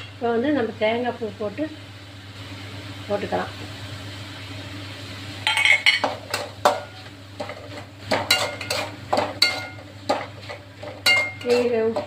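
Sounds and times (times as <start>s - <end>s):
steel spoon scraping metal pan: 8.2s - 12.0s.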